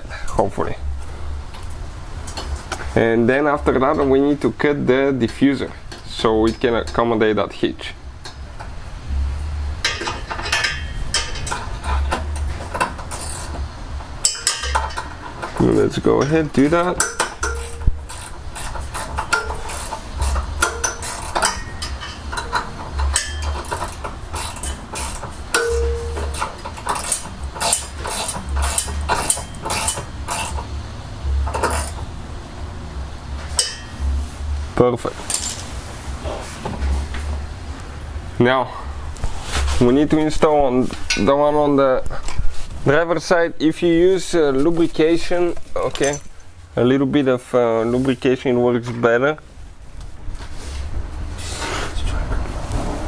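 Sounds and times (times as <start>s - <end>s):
metallic clinks of exhaust pipe: 9.8s - 32.1s, 33.5s - 34.2s.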